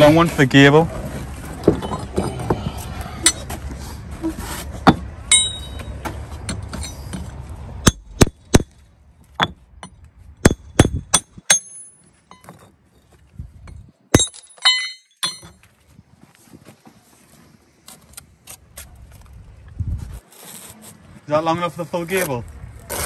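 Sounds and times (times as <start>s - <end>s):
metal tools knocking on bricks: 1.6s - 3.5s, 4.8s - 8.7s, 9.4s - 12.8s, 13.6s - 15.6s
ringing metal clinks: 5.3s - 5.9s, 14.2s - 15.6s.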